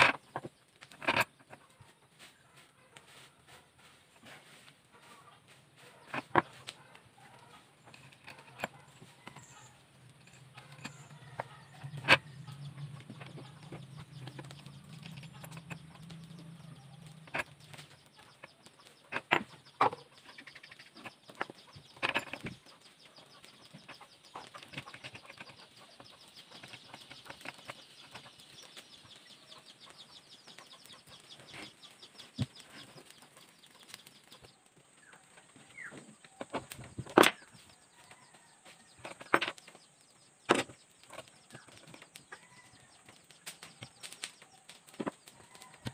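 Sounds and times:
metal parts and tools clicking: 7.9s - 28.2s.

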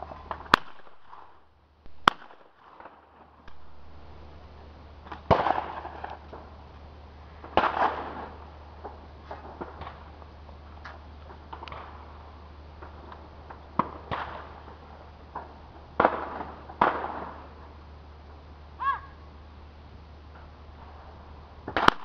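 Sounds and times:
shotgun shots: 0.5s - 2.9s, 5.2s - 6.0s, 7.5s - 8.4s, 13.8s - 14.5s, 16.0s - 17.4s, 21.7s - 22.0s.

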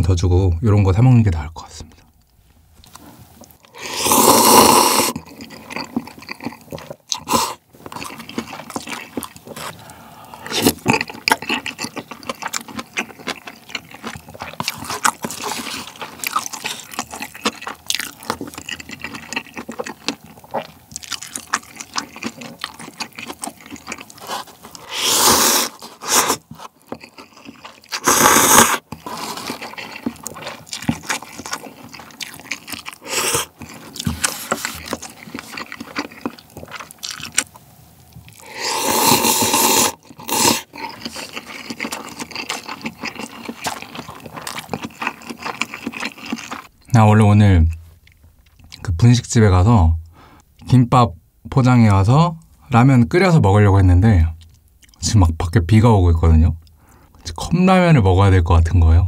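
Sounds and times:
person slurping noodles: 3.7s - 12.0s, 24.2s - 26.5s, 27.5s - 36.8s, 38.4s - 44.3s
wet chewing smacks: 40.0s - 46.7s.

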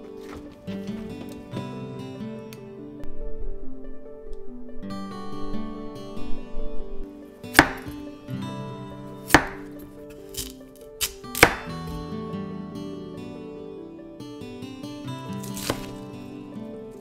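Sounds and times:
gentle background music: 0.0s - 17.0s
knife striking cutting board: 7.6s - 8.0s, 9.3s - 9.7s, 10.3s - 12.0s, 15.4s - 16.0s.

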